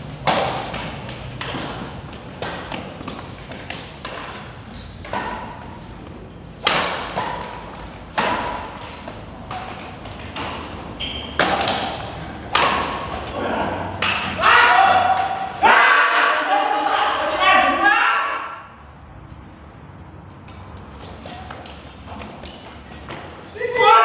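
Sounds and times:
badminton rackets hitting shuttlecock: 0.1s - 14.4s, 15.0s - 15.7s.

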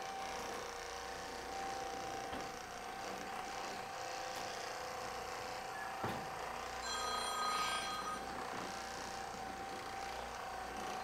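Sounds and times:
massage gun motor hum: 0.0s - 11.0s
short electronic ring: 6.8s - 8.5s.

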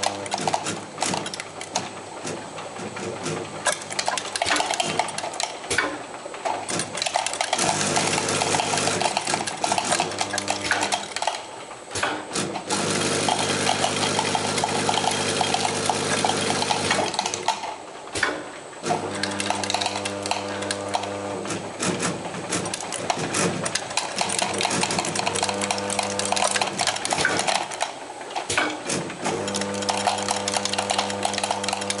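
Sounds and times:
machine hum with steady tones: 0.0s - 32.0s
tablets rattling and clicking: 19.2s - 21.2s, 22.5s - 28.0s, 29.4s - 32.0s.

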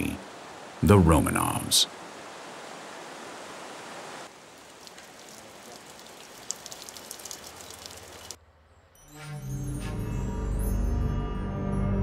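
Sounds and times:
stream rushing over rocks: 0.0s - 8.4s.

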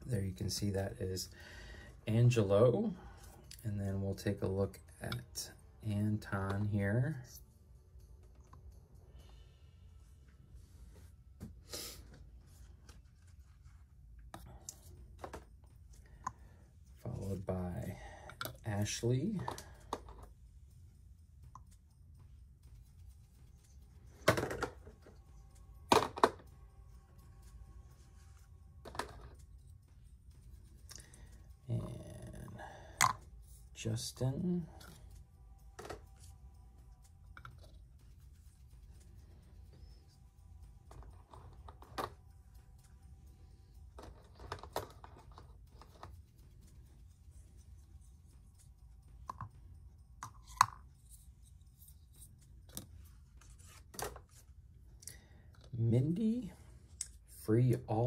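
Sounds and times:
faint low hum: 0.0s - 58.0s
plastic game pieces clicking: 44.0s - 46.1s.

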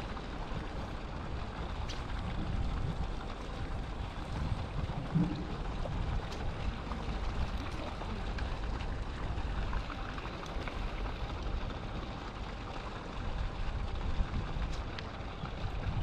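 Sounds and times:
wind rumbling on microphone: 0.0s - 9.7s, 13.2s - 16.0s.

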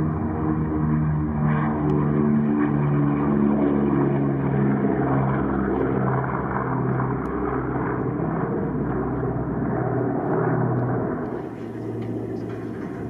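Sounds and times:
propeller aircraft engines droning: 0.0s - 13.0s.

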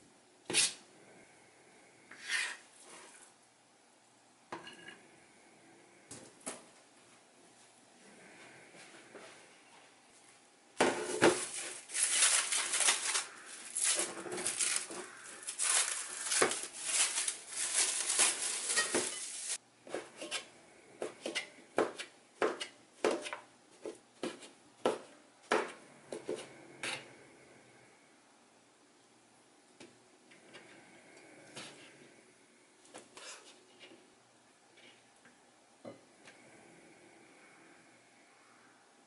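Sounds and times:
cling wrap crinkling: 11.0s - 19.6s.

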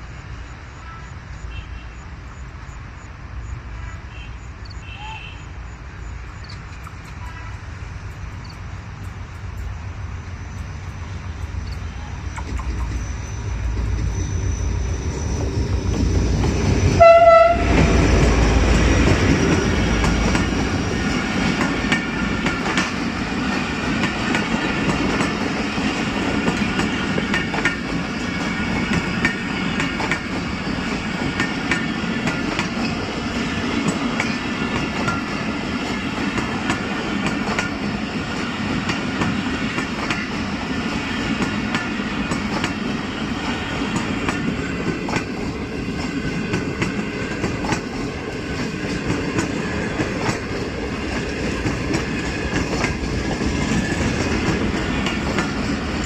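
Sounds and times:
train wheels rumbling on rails: 5.8s - 56.0s
wheels clacking over rail joints: 15.2s - 56.0s.

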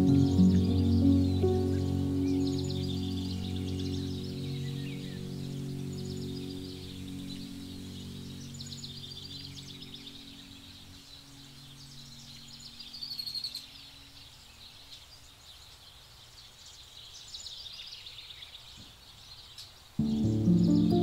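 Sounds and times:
faint birdsong chirps: 0.0s - 21.0s.

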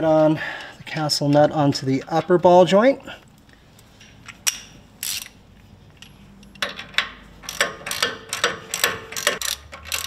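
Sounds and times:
hand ratchet clicking: 4.5s - 5.4s, 6.5s - 10.0s.

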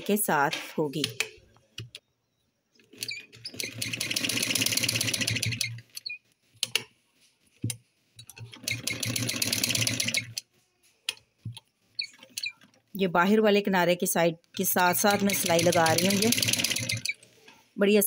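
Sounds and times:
sewing machine stitching: 2.9s - 6.0s, 8.3s - 10.4s, 14.6s - 17.2s.

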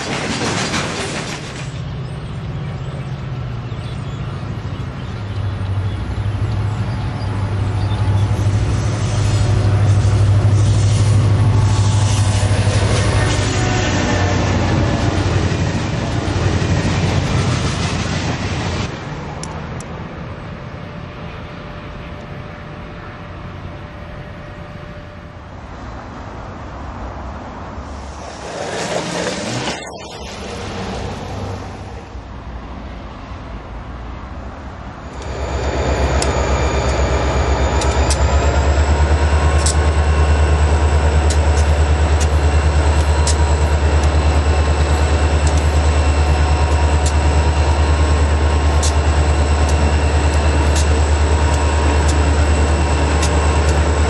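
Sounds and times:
diesel locomotive engine drone: 0.0s - 54.0s
diesel locomotive rumble: 0.0s - 54.0s
rush of noise: 6.6s - 20.6s, 26.2s - 33.0s, 34.6s - 54.0s.

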